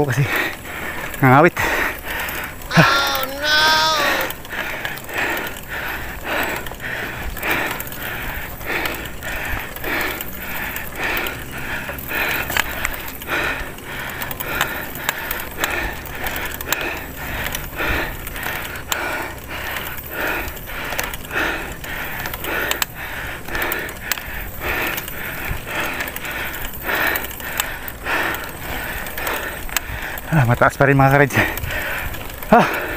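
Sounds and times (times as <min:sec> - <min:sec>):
cyclist breathing hard: 0:00.0 - 0:32.9
low rumble of riding: 0:00.0 - 0:32.9.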